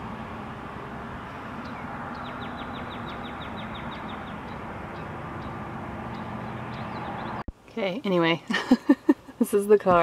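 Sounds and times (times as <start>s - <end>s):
car road noise: 0.0s - 7.5s
bird chirping: 1.3s - 7.5s.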